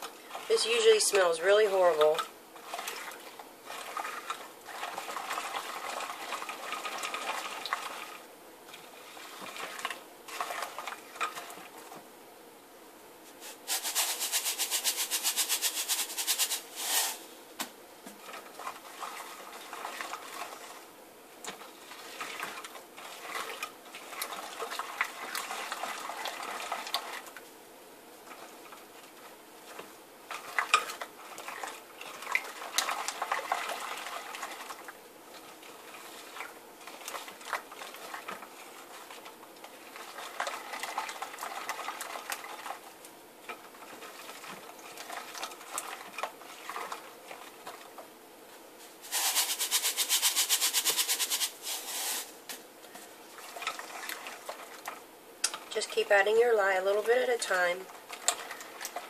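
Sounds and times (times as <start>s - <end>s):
dry powder rattling in container: 13.4s - 17.3s, 49.0s - 52.4s.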